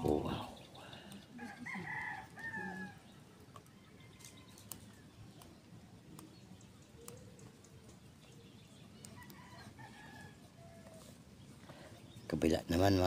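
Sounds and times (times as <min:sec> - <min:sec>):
rooster crowing: 0:01.3 - 0:03.1, 0:09.2 - 0:11.1.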